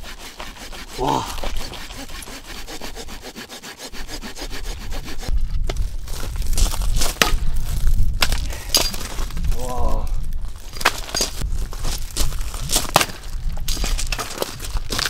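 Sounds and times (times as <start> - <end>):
hand saw rasping through log: 0.0 - 5.3
wind rumbling on microphone: 4.6 - 15.0
axe strikes splitting wood: 6.6 - 7.5, 8.2 - 9.0, 12.7 - 14.4.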